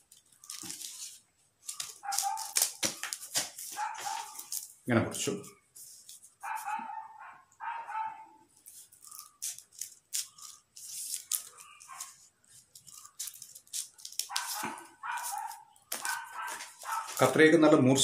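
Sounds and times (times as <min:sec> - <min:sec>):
scissors snipping paper: 0:00.0 - 0:04.7, 0:08.6 - 0:17.4
paper rustling: 0:00.0 - 0:04.8, 0:05.8 - 0:06.8, 0:08.5 - 0:17.5
dog barking: 0:02.0 - 0:02.6, 0:03.8 - 0:04.5, 0:06.4 - 0:08.4, 0:14.2 - 0:17.4.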